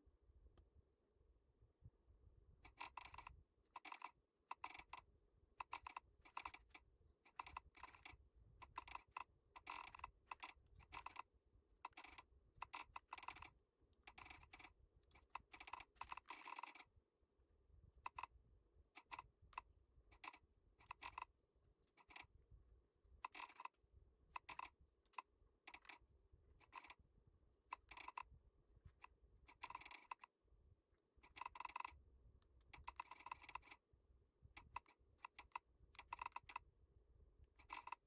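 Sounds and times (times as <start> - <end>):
mechanical keyboard key clicks: 34.6 - 36.6.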